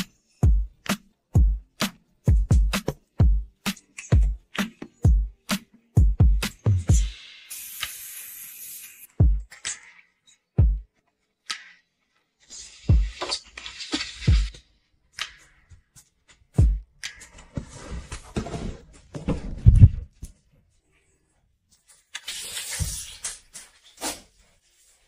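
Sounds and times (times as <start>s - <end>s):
foam soap hiss: 7.0s - 9.1s.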